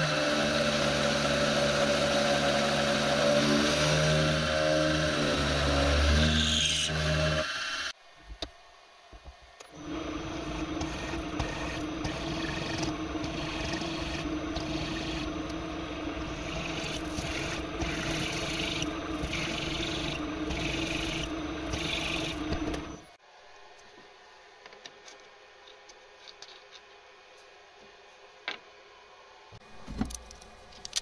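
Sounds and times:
drill motor hum: 9.7 - 23.2.

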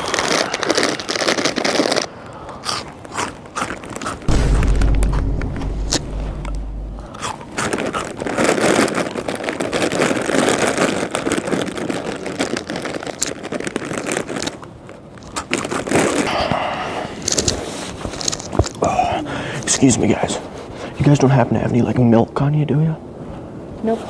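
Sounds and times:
chewing potato chips: 0.0 - 4.3, 7.1 - 18.9
deep low rumble: 4.3 - 8.3.

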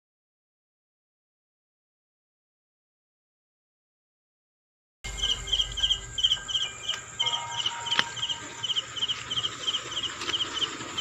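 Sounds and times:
cricket chirping: 5.1 - 11.0
high insect drone: 5.1 - 11.0.

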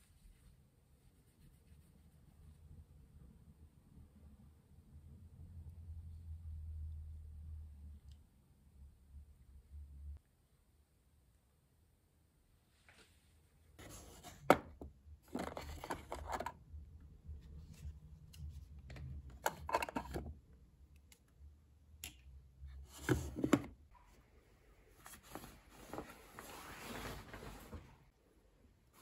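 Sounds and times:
rustling and rubbing: 25.0 - 28.1.

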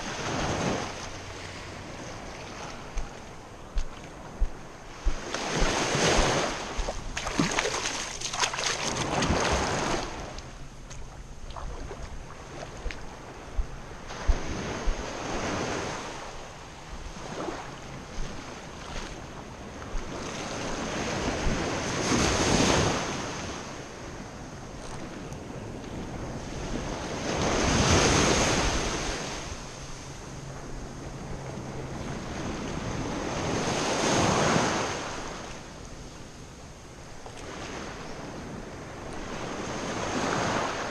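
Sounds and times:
surf breaking on beach: 4.9 - 10.3.

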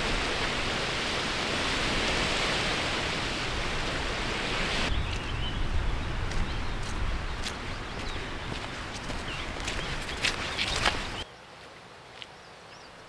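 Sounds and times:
falling water rushing: 0.0 - 11.2.

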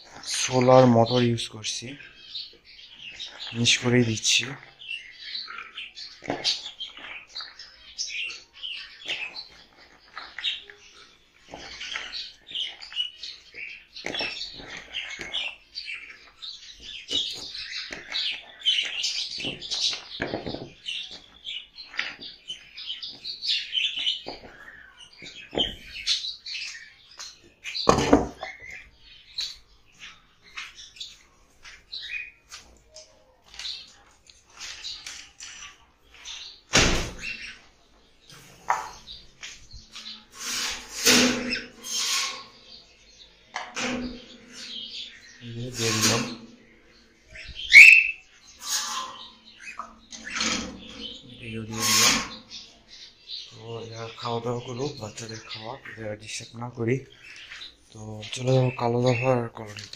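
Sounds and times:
sparrows chirping: 0.0 - 59.9.

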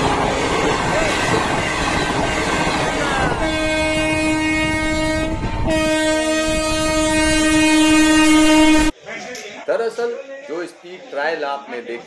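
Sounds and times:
train rushing on track: 0.0 - 8.9
locomotive horn blasts: 0.2 - 8.9.

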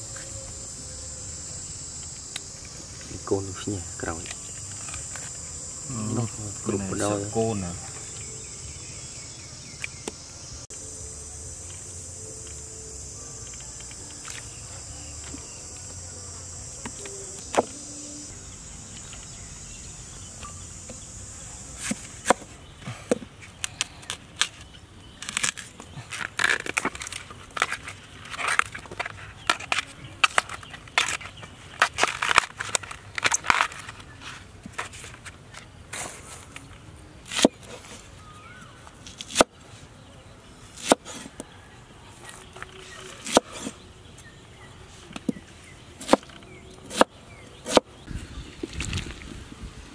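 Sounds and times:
insects buzzing: 0.0 - 49.9
bamboo husk crackling as peeled: 23.4 - 39.6
knife chopping on wooden board: 40.8 - 41.3, 46.9 - 47.8.

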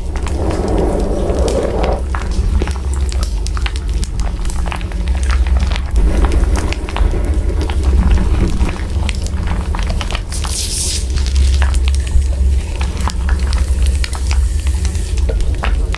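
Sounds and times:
hiss: 0.0 - 2.1
constant low rumble: 0.0 - 2.6.

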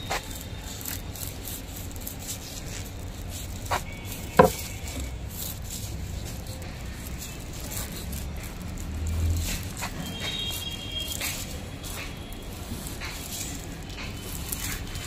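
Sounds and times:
pipe rubbing and scraping: 0.0 - 15.0
sharp knock: 4.4 - 4.7.

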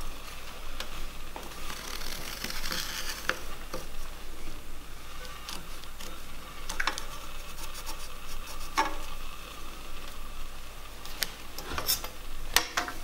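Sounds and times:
marking tool scratching wood: 7.0 - 8.9.

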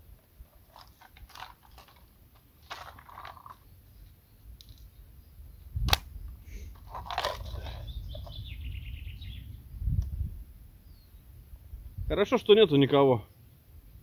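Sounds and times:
plastic box rattling: 0.6 - 3.6, 6.7 - 8.3
bird trilling: 7.6 - 9.5.

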